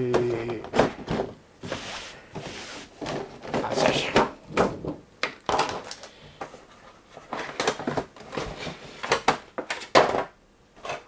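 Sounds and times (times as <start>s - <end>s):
plastic trays clicking and knocking: 0.0s - 1.4s, 3.0s - 6.5s, 7.2s - 11.0s.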